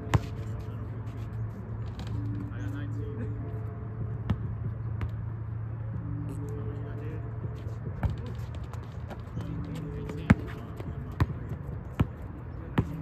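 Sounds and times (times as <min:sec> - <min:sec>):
basketball bouncing: 0:00.0 - 0:00.4, 0:04.3 - 0:05.2, 0:08.0 - 0:13.0.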